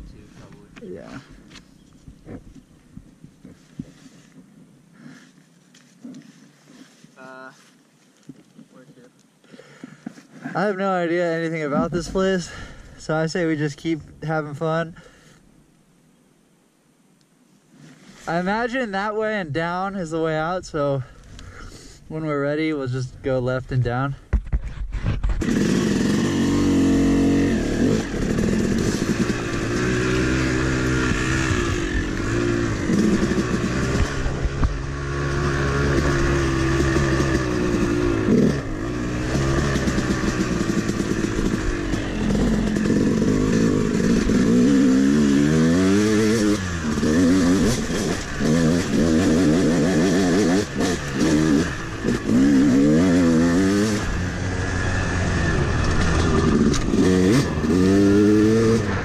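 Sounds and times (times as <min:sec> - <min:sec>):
dirt bike engine revving: 0:25.4 - 0:59.0.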